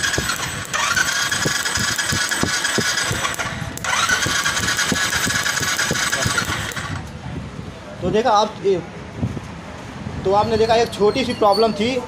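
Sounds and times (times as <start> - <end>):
electric starter motor whine: 0.0 - 7.1
engine turning over: 0.0 - 7.1.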